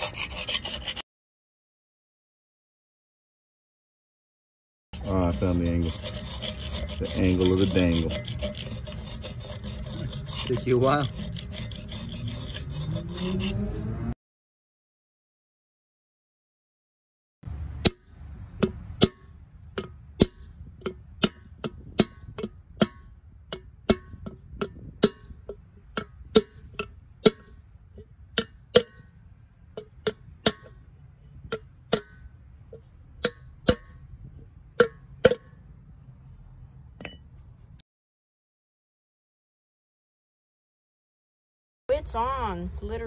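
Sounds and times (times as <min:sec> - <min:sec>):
hammer tapping steel: 0:17.8 - 0:27.6, 0:31.5 - 0:34.0, 0:34.8 - 0:35.6.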